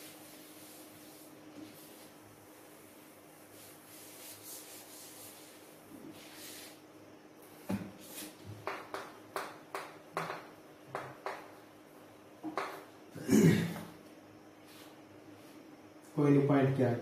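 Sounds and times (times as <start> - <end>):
duster wiping chalkboard: 0.0 - 6.8, 7.7 - 9.0
chalk writing on board: 3.6 - 6.8.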